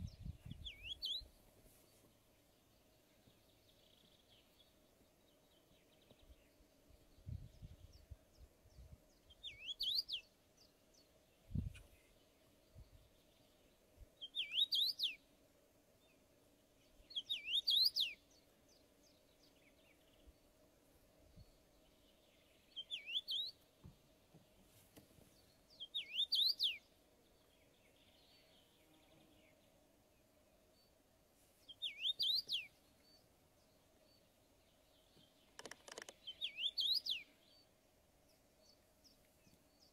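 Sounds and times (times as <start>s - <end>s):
bird singing whistled phrases: 0.6s - 1.2s, 9.4s - 10.2s, 14.2s - 15.2s, 17.1s - 18.2s, 22.8s - 23.6s, 25.8s - 26.8s, 31.7s - 32.7s, 36.3s - 37.3s.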